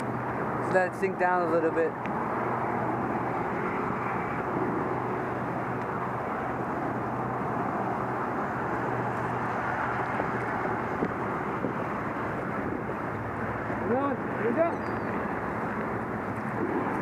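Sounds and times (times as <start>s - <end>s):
road traffic hiss: 0.0s - 17.0s.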